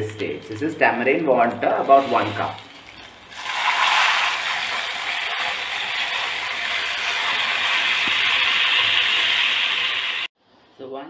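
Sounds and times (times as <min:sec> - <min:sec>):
liquid sizzling in hot oil: 0:01.5 - 0:10.3.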